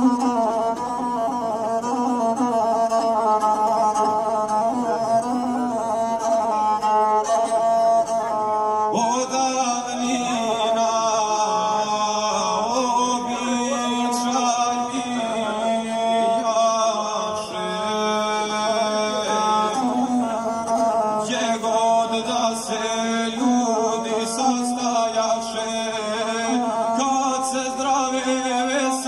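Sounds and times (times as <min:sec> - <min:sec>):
bowed single-string fiddle: 0:00.0 - 0:29.0
man singing in chant-like style: 0:08.9 - 0:29.0.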